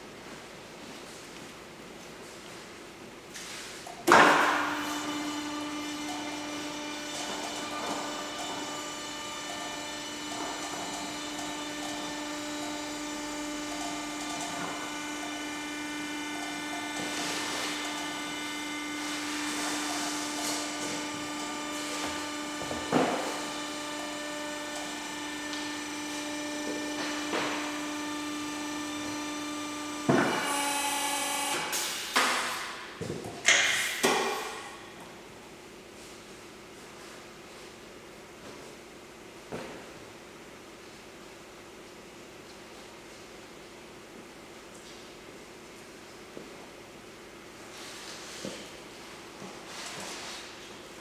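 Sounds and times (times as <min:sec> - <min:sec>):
car lift drive humming: 0:03.8 - 0:41.6.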